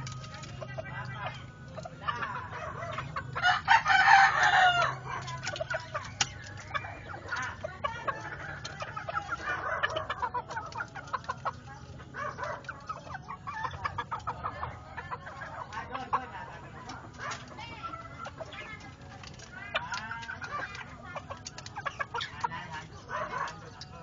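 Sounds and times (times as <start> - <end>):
chickens clucking: 0.0 - 24.0
rooster crowing: 3.4 - 5.2.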